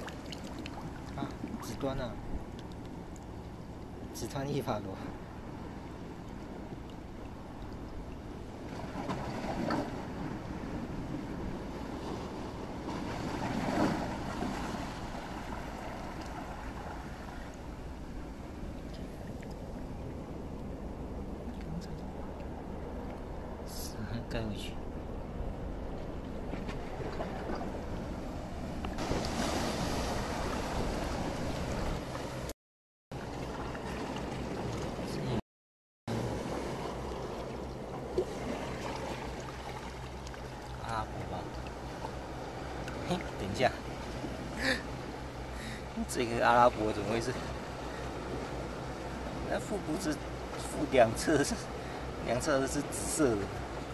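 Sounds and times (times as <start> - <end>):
water sloshing around rocks: 0.0 - 23.4, 25.9 - 32.5, 33.2 - 35.4, 36.1 - 52.2
small waves washing: 0.0 - 32.5, 33.1 - 35.4, 36.1 - 53.9
surf: 25.9 - 32.5, 36.1 - 53.9.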